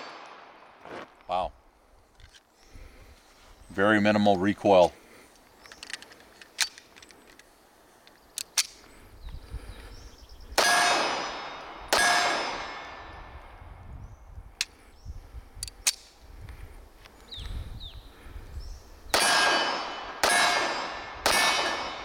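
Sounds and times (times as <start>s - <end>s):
pistol handling clicks: 5.6s - 8.9s, 15.6s - 16.2s
metallic ring of steel target: 10.6s - 13.1s, 19.2s - 22.0s
pistol shots: 10.6s - 13.1s, 19.2s - 22.0s.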